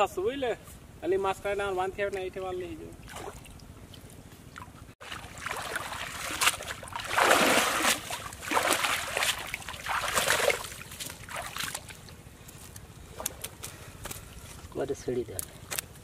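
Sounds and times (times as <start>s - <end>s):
water splashing and sloshing: 2.8s - 14.8s.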